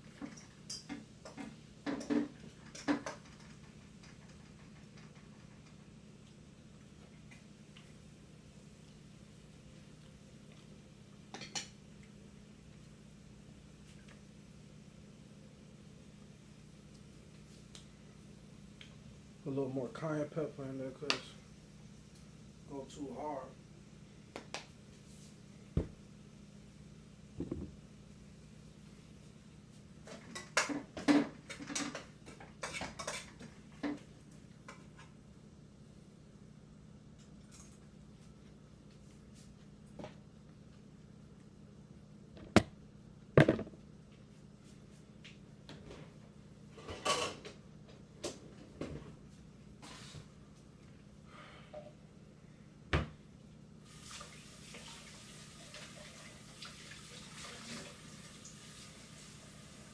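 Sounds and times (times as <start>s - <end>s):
faucet running water: 53.9s - 59.9s.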